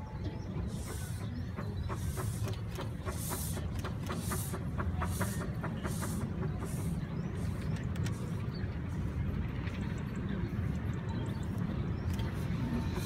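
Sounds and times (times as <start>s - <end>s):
steam locomotive chuffing: 0.0s - 9.7s.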